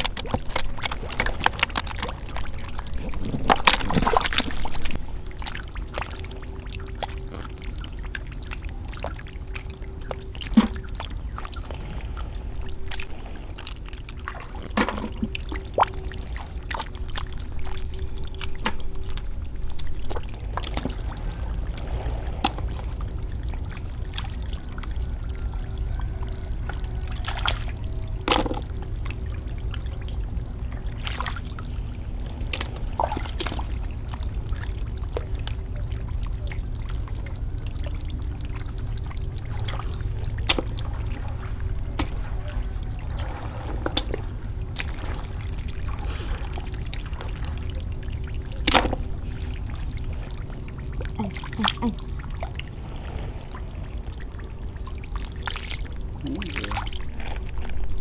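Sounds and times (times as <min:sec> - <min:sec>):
steady low rumble: 0:00.0 - 0:58.0
water pouring and splashing: 0:00.0 - 0:58.0
sharp splashes and knocks: 0:10.1 - 0:11.6, 0:14.3 - 0:15.9, 0:26.7 - 0:28.8, 0:38.5 - 0:49.2.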